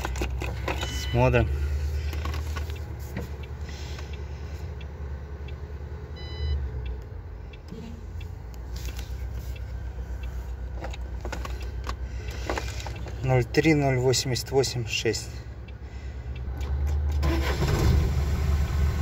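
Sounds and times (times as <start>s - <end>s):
diesel truck engine idling: 0.0s - 16.6s
short electronic warning beep: 6.2s - 6.6s.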